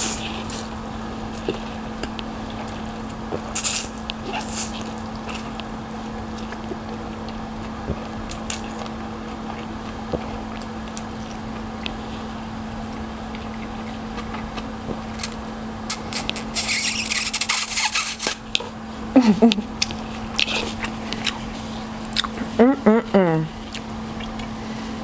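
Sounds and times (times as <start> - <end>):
steady low hum: 0.0 - 25.0
wet mouth clicks: 15.9 - 18.7, 22.0 - 22.4, 23.7 - 24.6
chewing and slurping noodles: 19.8 - 22.4.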